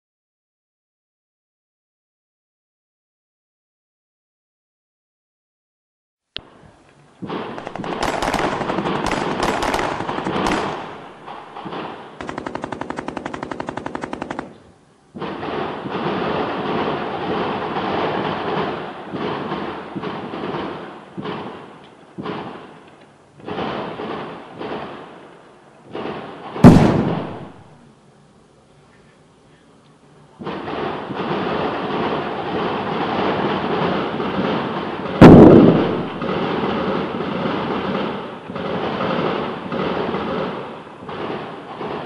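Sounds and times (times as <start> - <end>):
automatic gunfire bursts: 7.3 - 21.5, 30.5 - 42.0
loud blast with low rumble: 26.6 - 27.7, 32.8 - 37.4.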